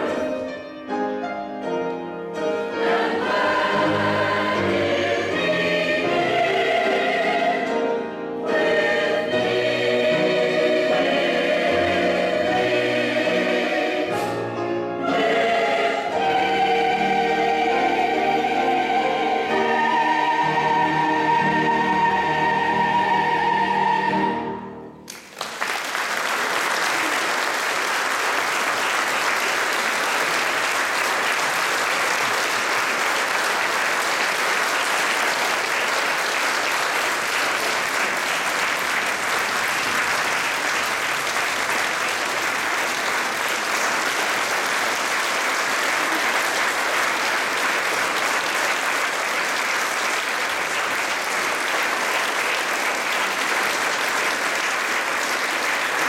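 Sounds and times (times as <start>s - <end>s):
choir holding a chord: 0.0s - 0.6s, 2.4s - 25.0s
audience applause: 25.1s - 56.0s.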